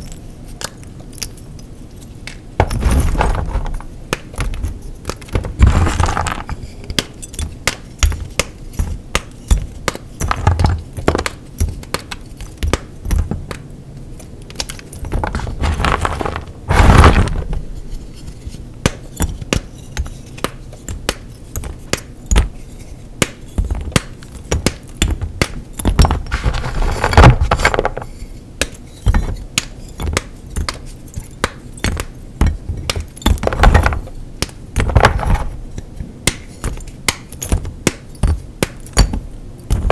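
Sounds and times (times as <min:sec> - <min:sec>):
loud grinding crunches: 0:05.6 - 0:06.5, 0:15.2 - 0:17.5
chalk crunching and crackling: 0:15.2 - 0:18.7, 0:26.3 - 0:28.4.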